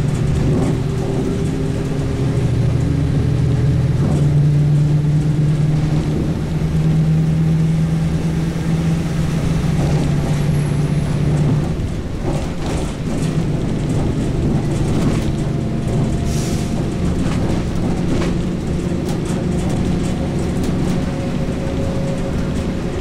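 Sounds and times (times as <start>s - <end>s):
road rumble: 0.0s - 23.0s
truck engine hum: 0.0s - 23.0s
body and window rattles: 11.2s - 23.0s.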